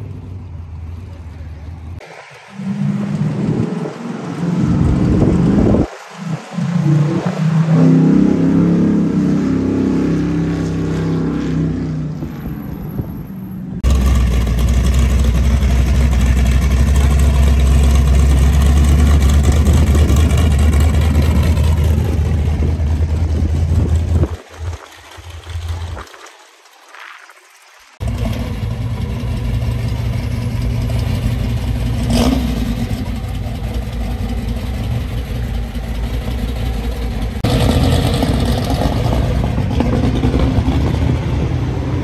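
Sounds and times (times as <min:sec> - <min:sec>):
car engine pulling away: 0:00.0 - 0:26.8, 0:27.6 - 0:42.0.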